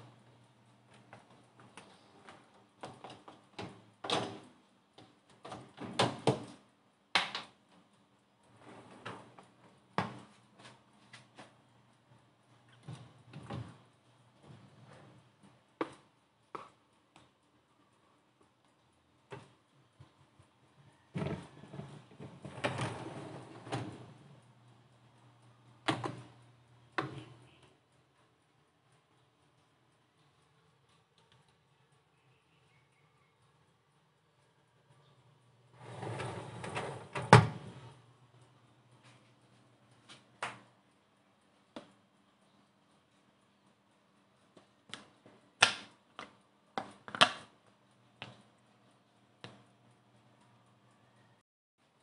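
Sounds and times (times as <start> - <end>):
wire dish racks clanking: 35.8 - 37.9.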